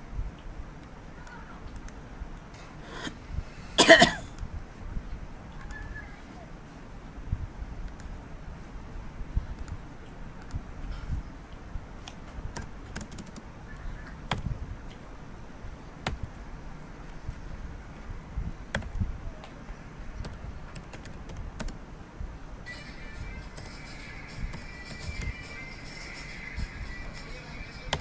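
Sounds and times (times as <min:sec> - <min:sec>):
computer keyboard typing: 0:12.0 - 0:13.5, 0:18.7 - 0:19.0, 0:20.2 - 0:21.8, 0:23.4 - 0:26.3, 0:26.9 - 0:28.0
music: 0:22.6 - 0:28.0.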